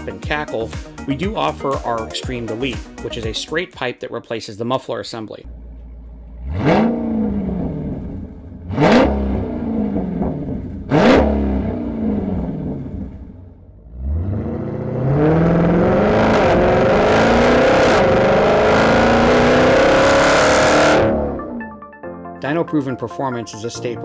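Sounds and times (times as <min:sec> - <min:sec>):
car engine revving: 0:05.5 - 0:21.7
loud car exhaust accelerating: 0:05.5 - 0:21.7.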